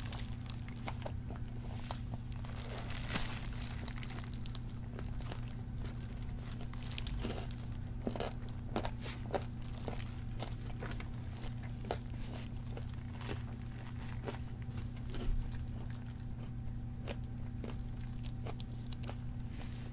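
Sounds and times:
plastic glove crinkling: 0:00.0 - 0:07.8, 0:08.4 - 0:16.2
crunchy chicken chewing: 0:00.0 - 0:19.9
steady low hum: 0:00.0 - 0:19.9.

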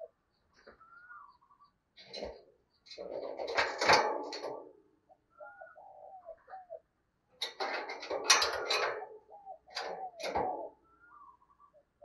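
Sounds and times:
dove cooing: 0:00.0 - 0:02.4, 0:04.4 - 0:06.9, 0:07.7 - 0:11.9.

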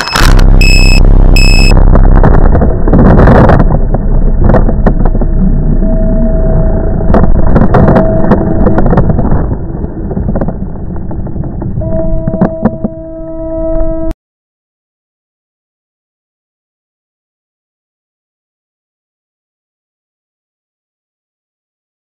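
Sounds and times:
wind rush on microphone: 0:00.2 - 0:14.1.

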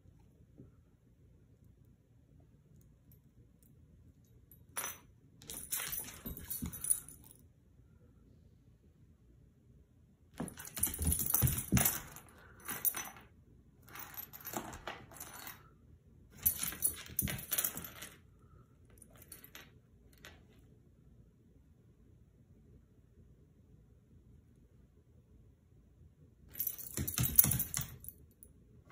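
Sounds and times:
metal collar tag jingling: 0:04.7 - 0:07.3, 0:10.4 - 0:13.2, 0:16.4 - 0:18.1, 0:26.5 - 0:28.1.

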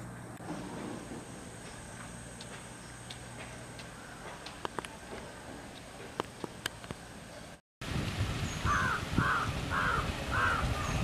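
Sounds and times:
wind rumble on microphone: 0:07.8 - 0:11.0
bird harsh calls: 0:08.5 - 0:11.0.

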